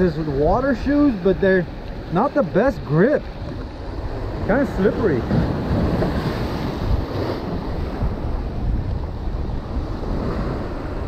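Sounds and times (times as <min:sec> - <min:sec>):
surf breaking on rocks: 0:00.0 - 0:11.0
wind buffeting microphone: 0:00.0 - 0:11.0.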